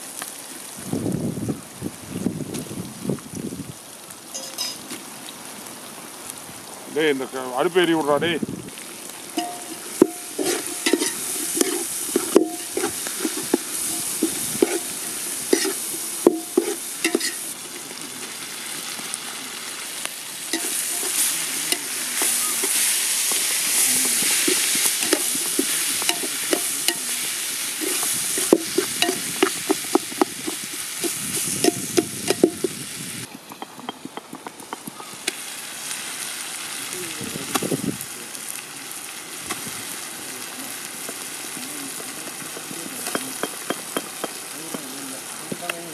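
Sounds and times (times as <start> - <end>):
onions sizzling in oil: 0.0 - 45.9
metal ladle scraping pot: 9.4 - 17.9, 20.5 - 32.7, 42.6 - 44.4.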